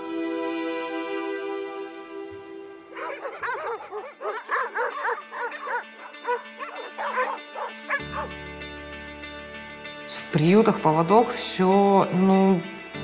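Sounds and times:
background music: 0.0 - 13.0
dogs barking and yelping: 2.9 - 8.4.

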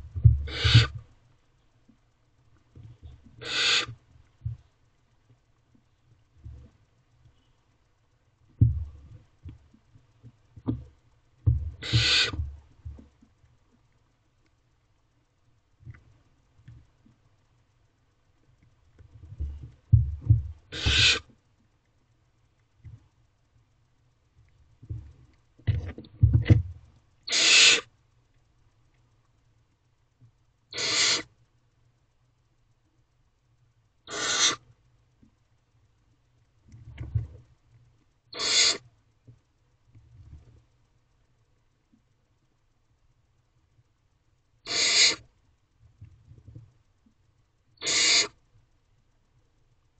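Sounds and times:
owlets rasping hissing calls: 0.4 - 1.0, 3.4 - 4.0, 11.8 - 12.5, 20.7 - 21.3, 27.3 - 27.9, 30.7 - 31.3, 34.1 - 34.6, 38.4 - 38.8, 44.7 - 45.3, 47.8 - 48.4.

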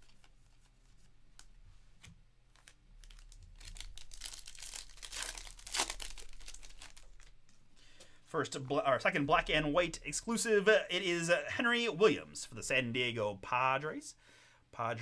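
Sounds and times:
plastic wrapper tearing and crinkling: 2.5 - 7.4.

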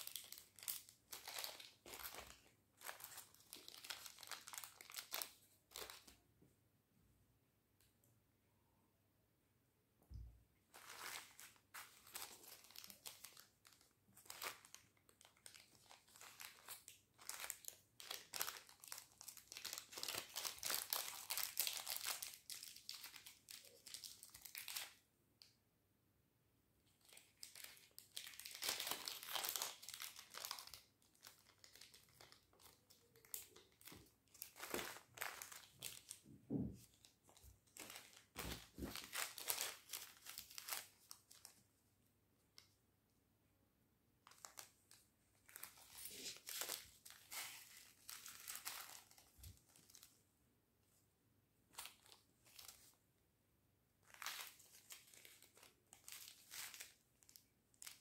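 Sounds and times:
plastic bags crinkling: 0.0 - 6.2, 10.7 - 24.8, 27.0 - 41.6, 44.2 - 50.1, 51.8 - 52.9, 54.0 - 58.0.

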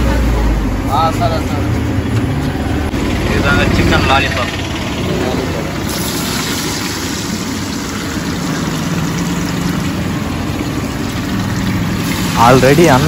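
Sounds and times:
road traffic hum: 0.0 - 13.0
oil bubbling and sizzling: 4.0 - 13.0.

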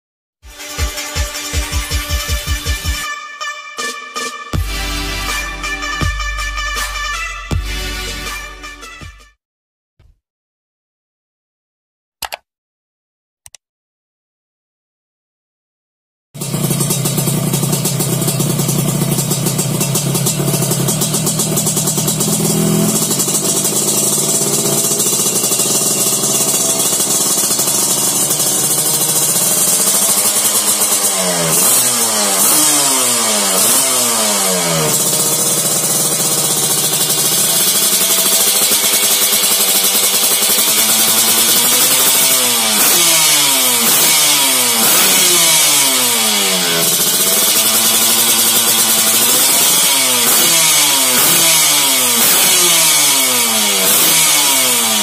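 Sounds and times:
two-stroke motorcycle engine idling: 16.4 - 55.0.

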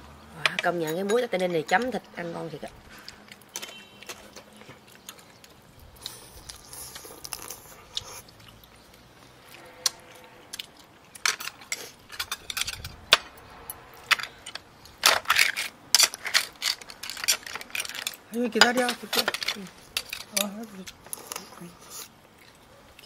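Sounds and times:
people chewing: 2.7 - 23.0
chopsticks and shells clicking: 10.6 - 21.5.

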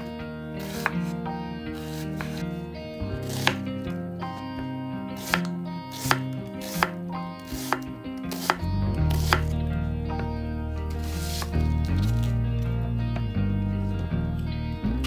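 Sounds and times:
background music: 0.0 - 15.0
knife chopping on cutting board: 0.7 - 0.9, 1.9 - 2.4, 3.2 - 3.6, 5.2 - 9.5.

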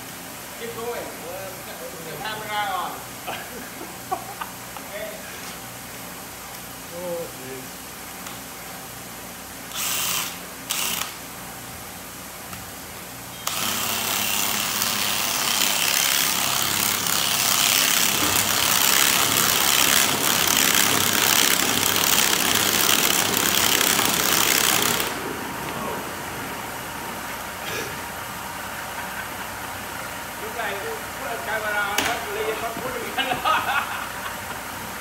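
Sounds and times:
hammer drill grinding whir: 9.7 - 11.2, 13.4 - 25.2.

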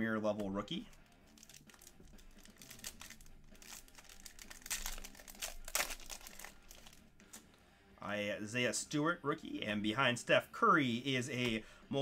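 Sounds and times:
foil pack tearing and crinkling: 1.3 - 7.0.

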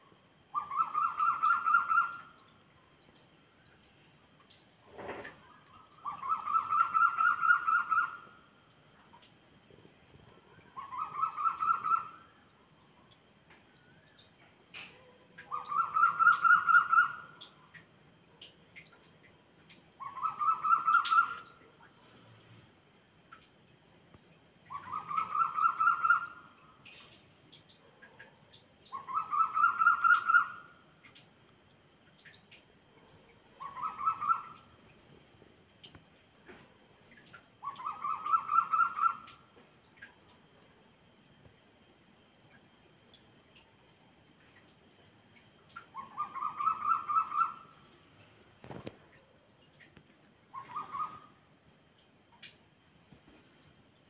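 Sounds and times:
crickets chorus: 0.0 - 54.0
night animal pulsing call: 0.4 - 2.7, 4.9 - 23.4, 24.7 - 31.2, 32.8 - 40.7, 43.6 - 48.0, 48.6 - 51.6.

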